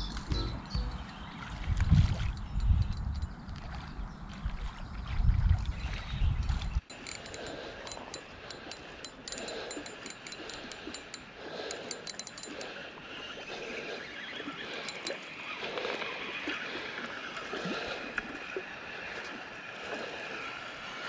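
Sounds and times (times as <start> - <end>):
small waves lapping on pebbles: 12.5 - 21.0.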